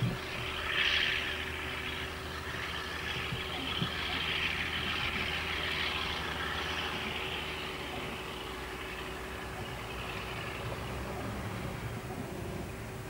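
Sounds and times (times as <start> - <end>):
diesel locomotive engine droning: 0.0 - 13.0.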